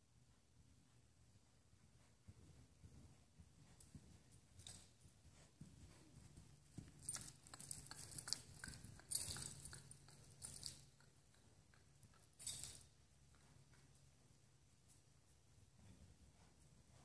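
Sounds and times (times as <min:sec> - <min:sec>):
horse hoofbeats on dirt: 0:01.8 - 0:14.2.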